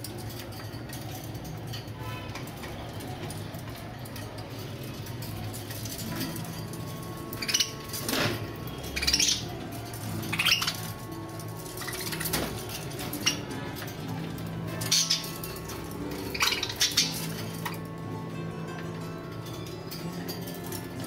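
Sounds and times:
budgerigars chirping: 7.3 - 8.2, 8.8 - 14.0, 14.7 - 17.7.

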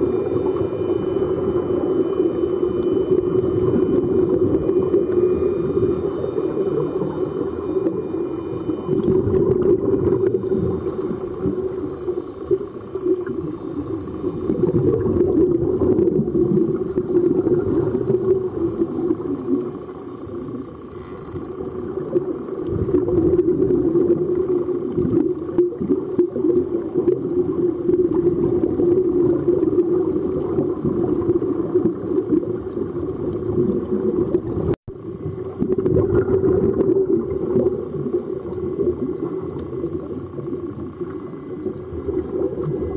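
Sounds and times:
muffled bubbling water: 0.0 - 42.9.

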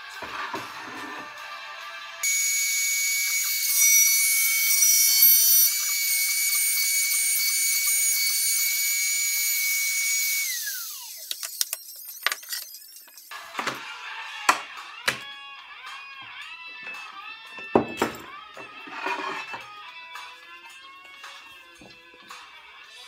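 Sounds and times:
router spinning high whine: 2.2 - 13.4.

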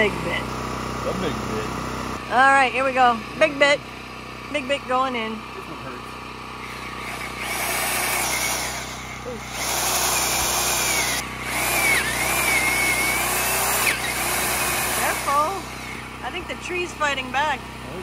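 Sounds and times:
drill boring into wood: 0.0 - 3.0, 6.6 - 17.4.

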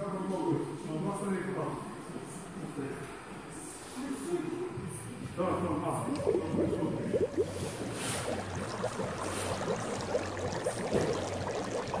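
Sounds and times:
steady low hum: 5.7 - 12.0
bubbling gurgling water: 5.9 - 12.0.

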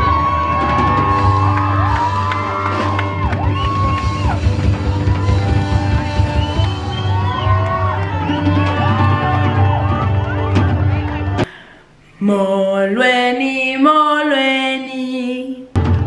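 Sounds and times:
drums playing: 0.0 - 11.4, 15.8 - 16.0
saxophone long sliding notes: 0.0 - 11.4
upright double bass: 0.0 - 11.4
audience whooping and shouting: 0.0 - 11.5.

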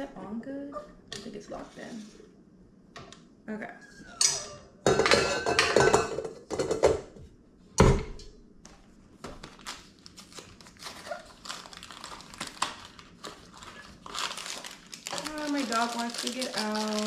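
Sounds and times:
clattering at steel mixer bowl: 4.2 - 7.1
knocks and rustling on countertop: 4.9 - 8.2.

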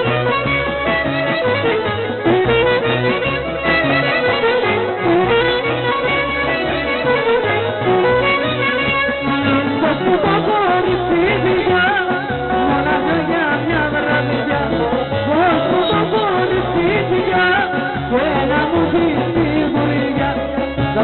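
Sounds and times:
clarinet: 0.0 - 13.5
repeating bass accompaniment: 0.0 - 21.0
woman singing: 9.3 - 21.0.

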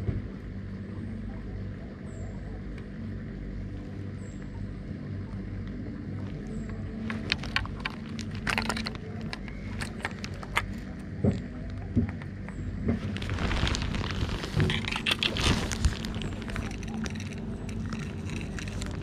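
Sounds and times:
steady low hum: 0.0 - 19.0
fishing reel clicking and rattling: 14.7 - 19.0.

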